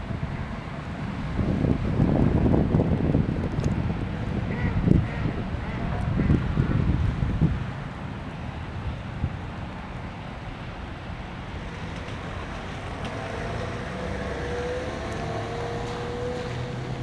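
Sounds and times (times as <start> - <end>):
wind on microphone: 0.0 - 9.6.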